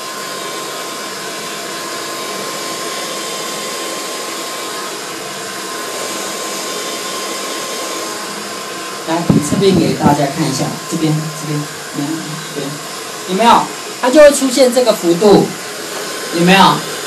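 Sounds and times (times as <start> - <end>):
hair dryer running: 0.0 - 17.0.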